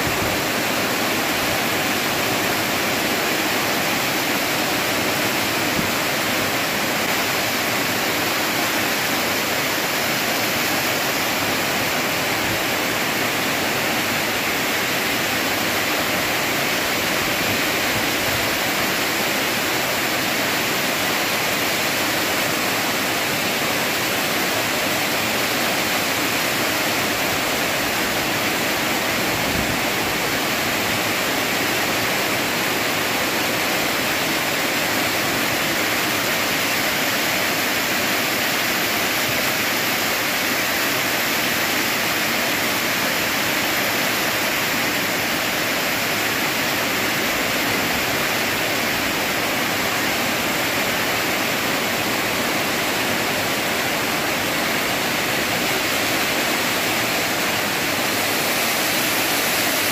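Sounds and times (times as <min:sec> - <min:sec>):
rain falling steadily: 0:00.0 - 0:59.9.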